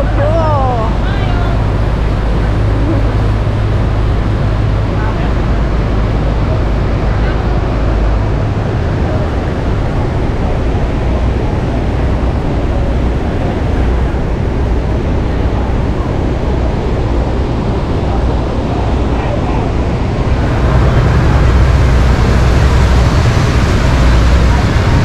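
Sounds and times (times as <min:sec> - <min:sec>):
river churning: 0:00.0 - 0:25.0
waterfall roaring: 0:00.0 - 0:25.0
wind buffeting microphone: 0:00.0 - 0:25.0.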